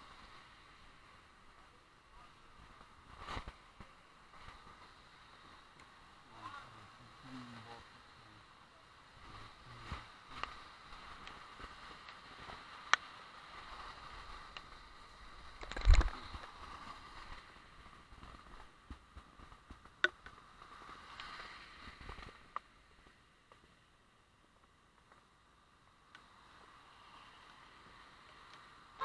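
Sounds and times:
tyres hissing on wet road: 0:03.9 - 0:15.5, 0:20.5 - 0:22.5, 0:26.2 - 0:29.0.

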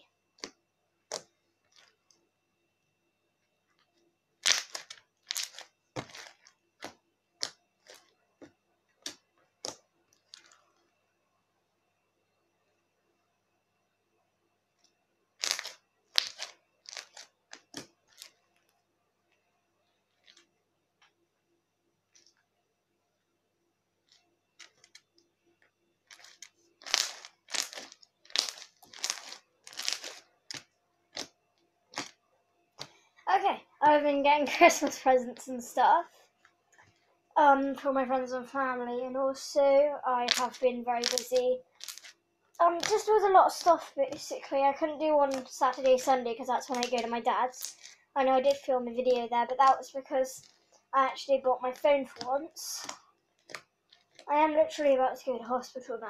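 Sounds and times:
slime crunching and popping: 0:04.4 - 0:08.0, 0:15.4 - 0:18.3, 0:26.1 - 0:31.3, 0:31.9 - 0:32.2, 0:40.3 - 0:42.1, 0:42.8 - 0:43.9, 0:46.6 - 0:47.9.

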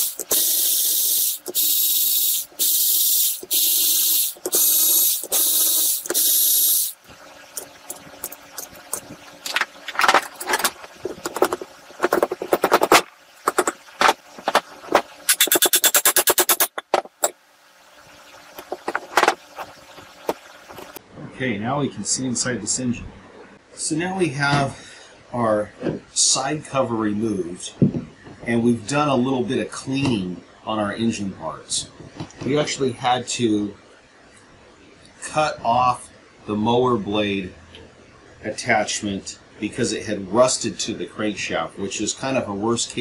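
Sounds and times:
power ratchet whirring: 0:00.0 - 0:07.0, 0:15.3 - 0:17.4
quick clicks: 0:15.3 - 0:16.8.

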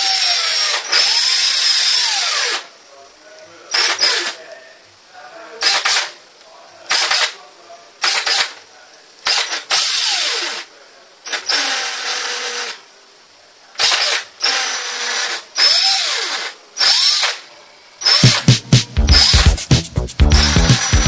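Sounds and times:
electric power drill whirring: 0:00.0 - 0:02.6, 0:09.3 - 0:10.6, 0:11.3 - 0:12.8, 0:13.8 - 0:17.4, 0:18.0 - 0:18.4.

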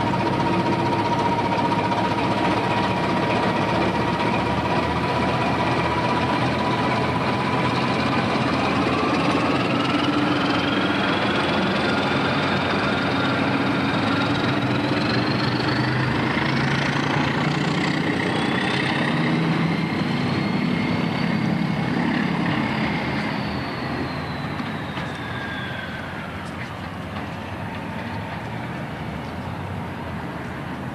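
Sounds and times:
diesel locomotive engine whine: 0:00.0 - 0:30.9.

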